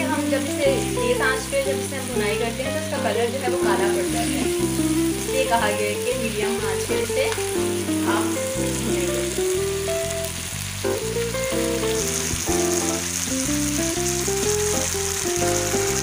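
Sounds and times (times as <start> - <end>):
background music with held notes: 0.0 - 16.0
food sizzling in oil: 0.0 - 16.0.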